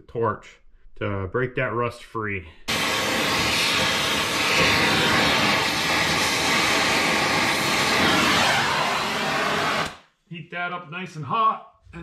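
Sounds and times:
gas torch flame hissing: 2.7 - 10.0.

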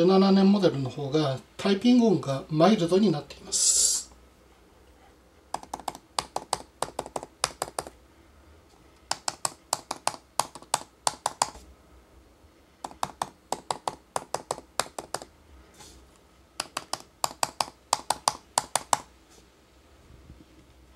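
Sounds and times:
laptop keyboard typing: 5.5 - 8.0, 9.0 - 11.6, 12.8 - 15.3, 16.6 - 19.1.

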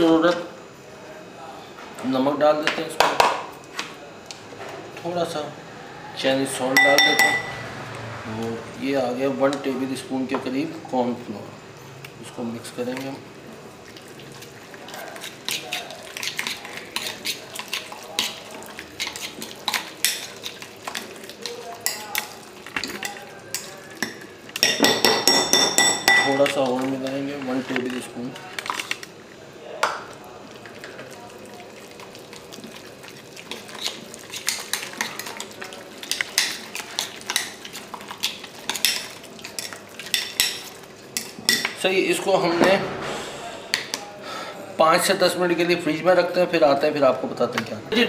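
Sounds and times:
clinks against glass bowl: 6.7 - 7.6, 24.0 - 26.6
hand mixing chicken in a bowl: 13.8 - 25.0, 26.1 - 29.1, 30.1 - 42.0.

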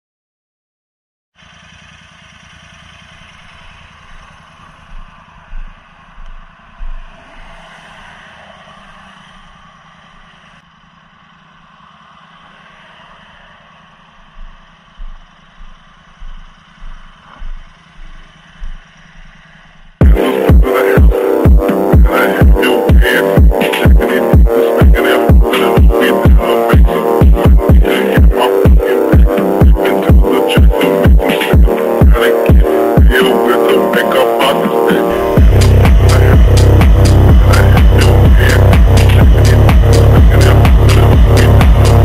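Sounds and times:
motorcycle running: 1.4 - 42.0
electronic music with heavy beat: 3.4 - 7.7, 13.8 - 42.0
irregular low thumps: 4.0 - 7.5, 14.1 - 33.1, 35.3 - 42.0.

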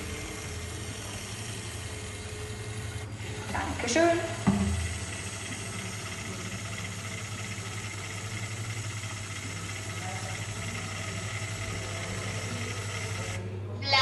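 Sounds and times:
small electric motor and gears: 0.0 - 13.5.

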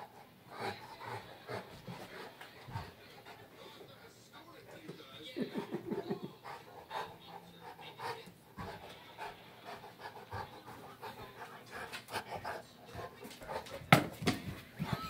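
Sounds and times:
dog panting: 0.0 - 15.0.

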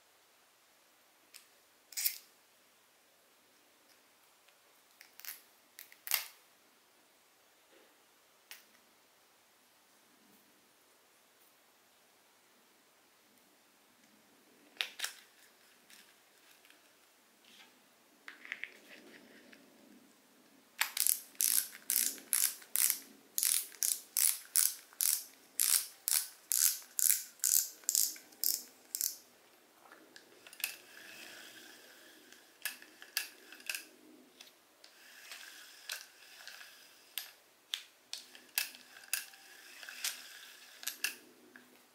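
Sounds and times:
fishing reel ratchet clicking: 20.8 - 29.2
fishing reel whirring: 21.0 - 29.2.

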